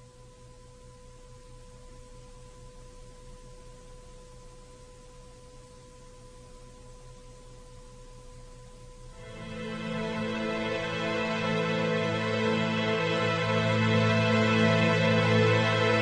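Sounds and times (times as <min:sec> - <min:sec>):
low hum and hiss: 0:00.0 - 0:16.0
music: 0:09.0 - 0:16.0.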